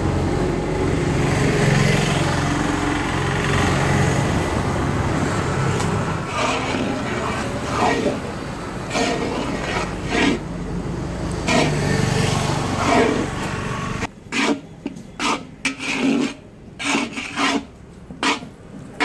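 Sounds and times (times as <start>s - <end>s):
metal rod scraping in metal wok: 6.2s - 8.3s, 8.9s - 10.4s, 11.5s - 11.9s, 12.8s - 18.5s.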